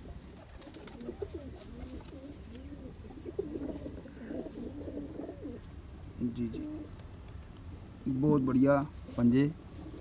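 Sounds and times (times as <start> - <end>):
pigeons cooing: 0.0 - 5.7, 6.4 - 7.0, 9.7 - 10.0.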